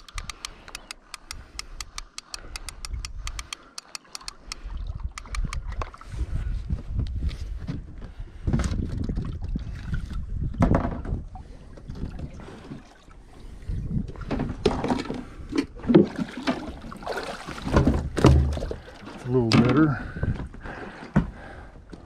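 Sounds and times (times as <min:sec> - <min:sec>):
wind on microphone: 0:00.0 - 0:03.6, 0:04.3 - 0:15.9, 0:19.8 - 0:20.7
fishing rod and reel knocking: 0:00.0 - 0:05.8
water lapping against boat: 0:03.6 - 0:06.7, 0:08.1 - 0:21.9.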